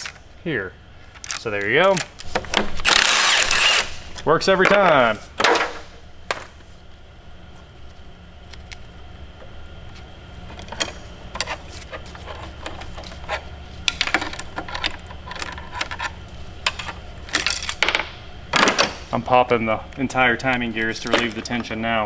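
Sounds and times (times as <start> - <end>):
low steady hum: 0.0 - 22.0
metal tools clinking and rattling: 20.8 - 21.8.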